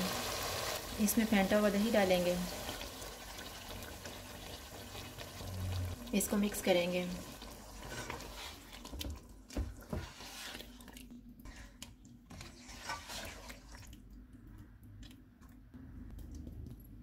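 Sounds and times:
wet squelching stirring: 7.3s - 17.0s.

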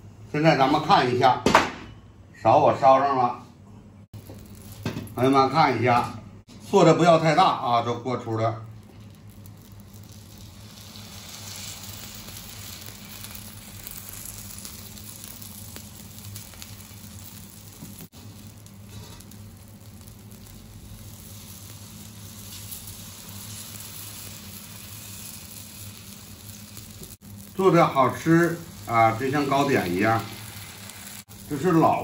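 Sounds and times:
batter sizzling in hot oil: 4.2s - 5.7s, 7.2s - 32.0s.

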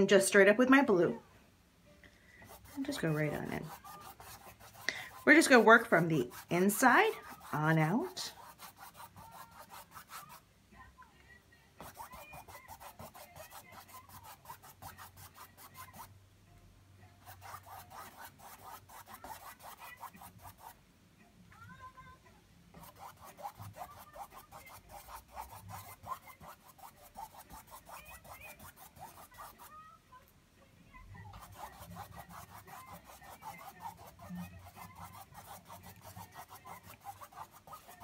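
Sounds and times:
paintbrush scrubbing on canvas: 2.4s - 10.4s, 11.8s - 16.1s, 17.2s - 20.8s, 22.8s - 29.8s, 31.3s - 38.0s.

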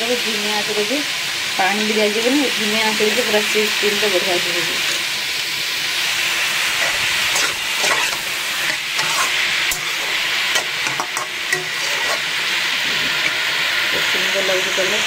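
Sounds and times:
curry sizzling in pan: 0.0s - 15.0s
spoon scraping and tapping pan: 6.8s - 12.2s.

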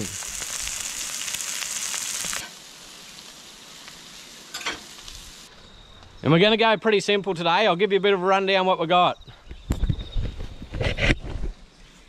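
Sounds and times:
seafood sizzling in a frying pan: 0.0s - 5.5s.

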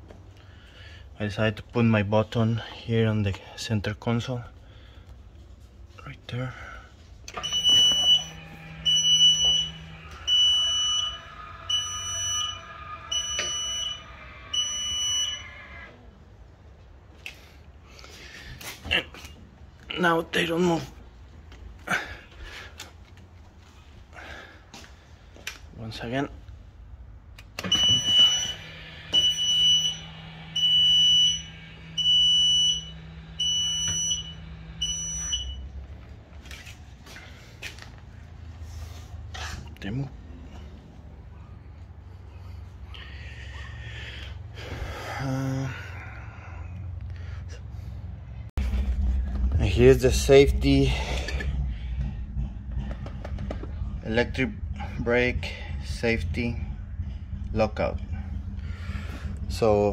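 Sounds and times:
brake actuator whine: 7.2s - 16.4s, 26.4s - 36.8s, 46.0s - 59.9s
high steady beeps: 7.4s - 15.5s, 27.7s - 35.7s.

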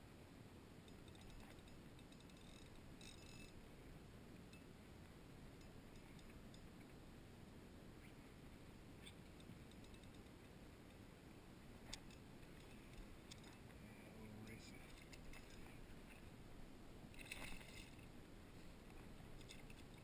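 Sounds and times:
faint low rumble: 0.0s - 20.0s
faint clicks: 9.0s - 11.0s, 11.8s - 16.3s.

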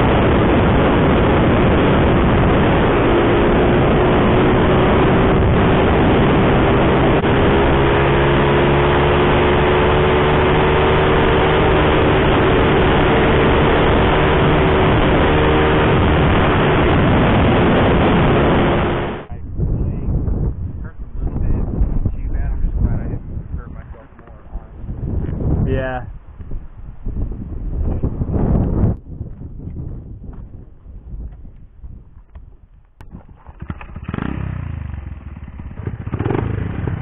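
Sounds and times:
wind rushing over microphone: 0.0s - 37.0s
small motorbike engine running: 0.2s - 19.2s, 33.0s - 37.0s.

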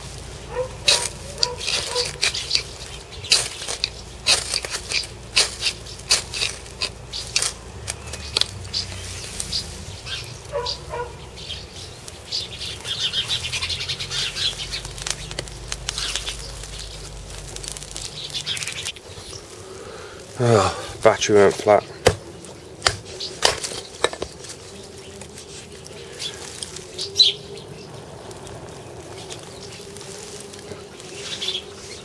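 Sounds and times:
dry grass crackling in flames: 0.0s - 32.0s
knife scraping ferro rod: 0.8s - 8.5s.

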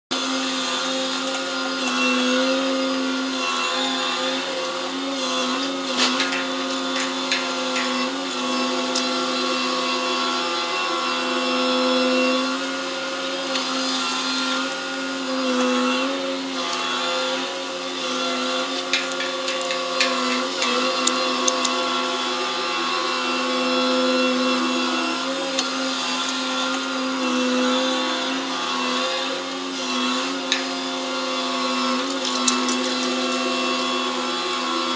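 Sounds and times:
sharp metal clanks: 6.0s - 8.2s, 18.7s - 21.6s.

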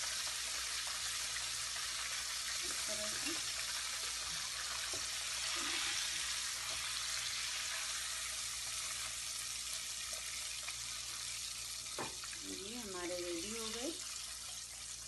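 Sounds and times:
oil bubbling and hissing: 0.0s - 15.0s.

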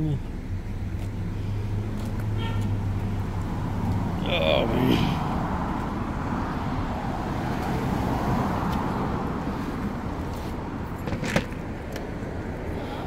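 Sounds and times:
road traffic noise: 0.0s - 13.0s.

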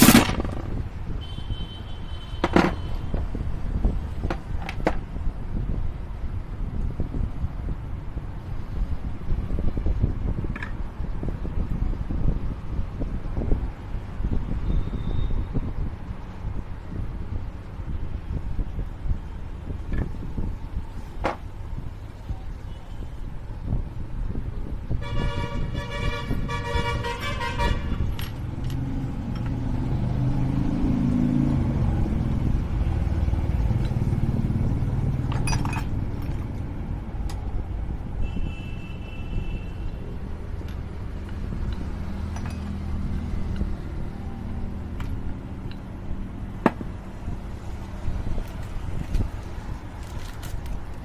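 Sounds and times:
vehicle engines passing: 23.2s - 38.2s, 39.7s - 51.0s
vehicle horn honking: 25.0s - 28.0s, 38.2s - 39.8s.

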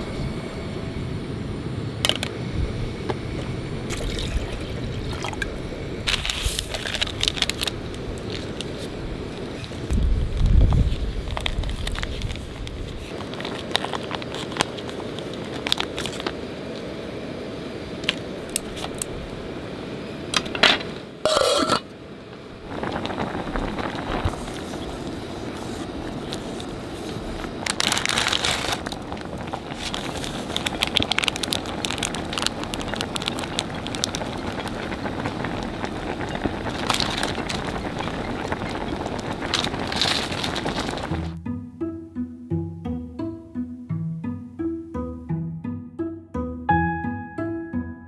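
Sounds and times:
gas burner hissing: 0.0s - 41.4s
broth simmering: 3.4s - 20.4s, 21.1s - 41.4s
packet crinkling and tearing: 6.1s - 8.8s, 10.2s - 16.4s, 26.2s - 41.4s.

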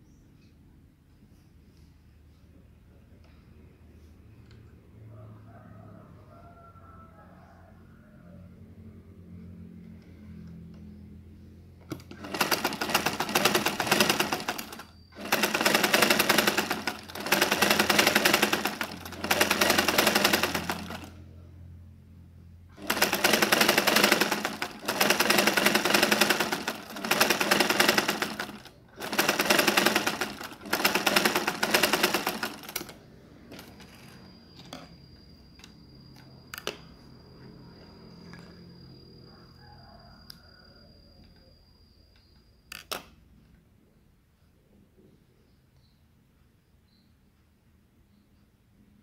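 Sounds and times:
sewing machine stitching: 11.9s - 21.2s, 22.7s - 34.7s.

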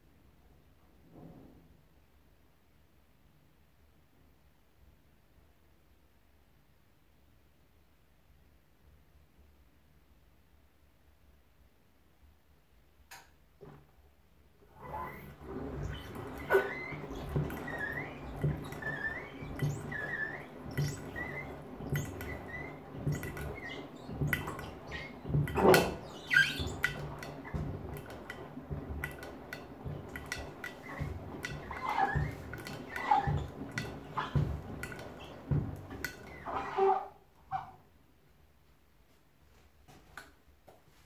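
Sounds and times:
washing machine drum tumbling: 14.6s - 37.7s
short squeaks: 14.7s - 37.8s
sandals knocking against drum: 15.4s - 36.5s.

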